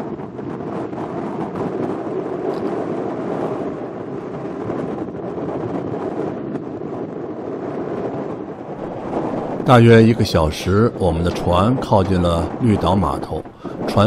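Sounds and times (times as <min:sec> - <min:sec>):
wind on microphone: 0:00.0 - 0:14.0
boat engine rumble: 0:08.6 - 0:14.0.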